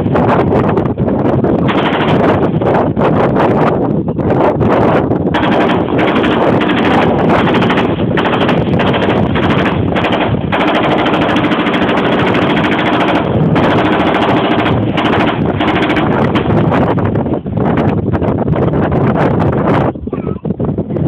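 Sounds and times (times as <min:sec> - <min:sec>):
machine gun automatic fire: 0:01.6 - 0:02.8, 0:05.3 - 0:17.0.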